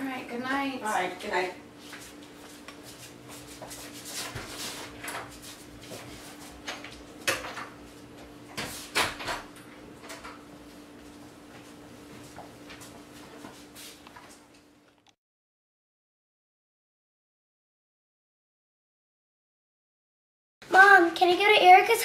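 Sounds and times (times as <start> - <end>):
footsteps: 1.8 - 7.0.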